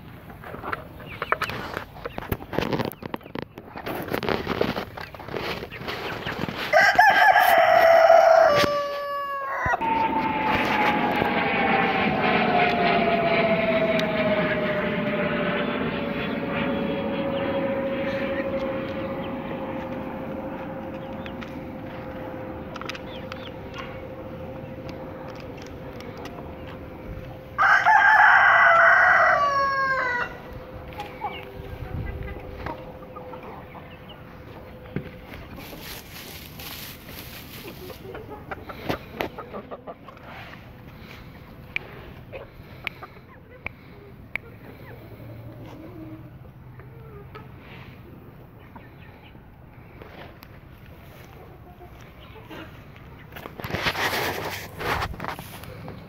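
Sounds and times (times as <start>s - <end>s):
hens clucking: 0.0s - 11.3s, 18.0s - 56.0s
rooster crowing: 6.7s - 14.6s, 27.4s - 30.8s
steady drone falling in pitch: 6.7s - 50.5s.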